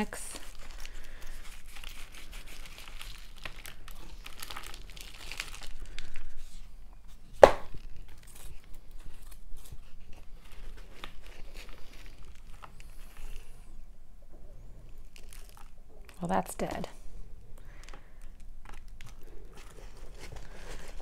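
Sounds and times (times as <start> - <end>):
hands rustling potting soil: 18.0 - 21.0.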